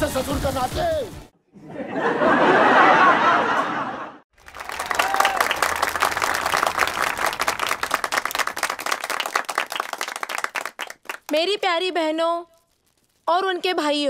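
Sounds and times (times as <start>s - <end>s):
crowd applauding: 4.3s - 11.5s.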